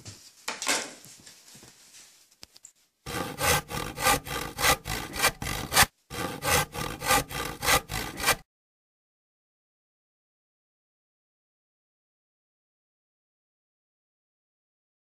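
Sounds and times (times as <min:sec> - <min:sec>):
hand saw sawing: 0:03.1 - 0:08.5.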